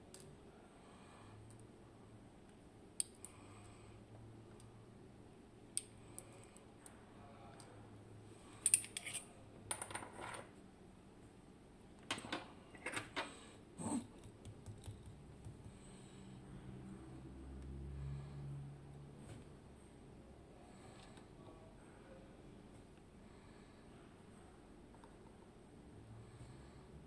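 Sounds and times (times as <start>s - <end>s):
small metal parts clinking: 8.6s - 10.5s.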